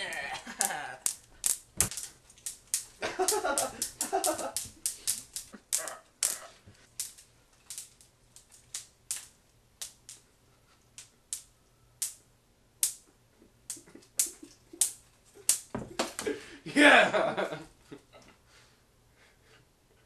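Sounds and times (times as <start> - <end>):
wire coat hangers clacking: 0.0 - 12.2.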